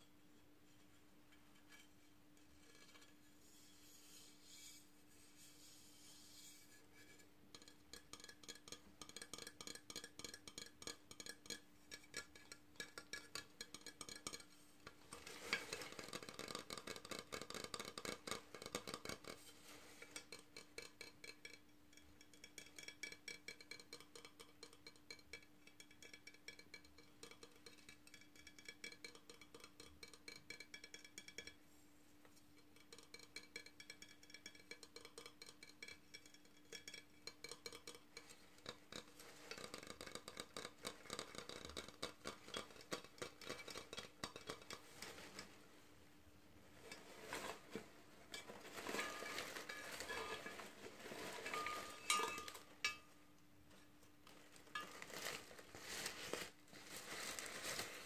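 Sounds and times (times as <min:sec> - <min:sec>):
fingernails tapping on ceramic: 0:07.6 - 0:14.6, 0:20.0 - 0:31.6, 0:32.5 - 0:45.4.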